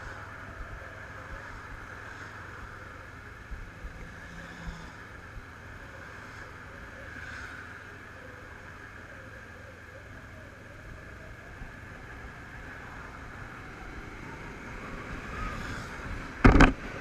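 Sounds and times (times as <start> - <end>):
motorcycle engine rumble: 0.0 - 17.0
small knocks: 16.4 - 16.8.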